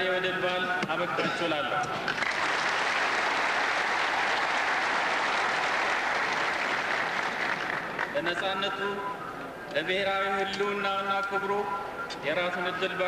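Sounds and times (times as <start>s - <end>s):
large crowd applauding: 2.1s - 8.2s.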